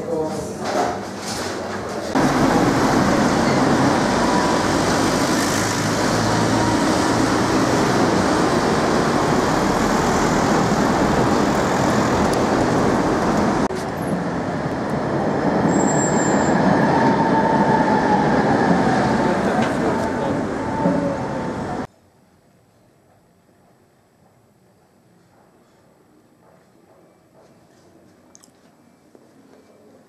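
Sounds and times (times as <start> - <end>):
cars driving past: 2.1 - 14.8.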